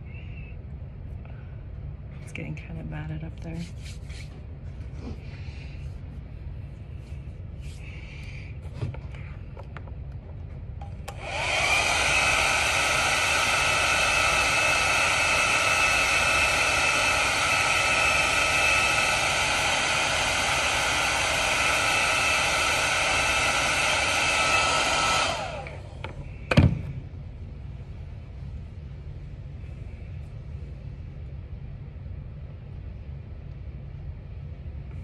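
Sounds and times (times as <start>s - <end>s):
hair dryer blowing with a whine: 10.5s - 27.2s.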